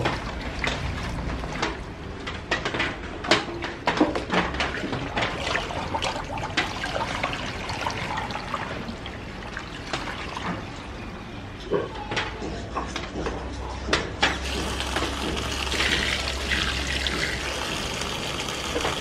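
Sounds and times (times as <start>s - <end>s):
water dripping and trickling: 0.0s - 2.0s, 4.6s - 11.0s, 14.4s - 19.0s
water splashing and sloshing: 0.0s - 19.0s.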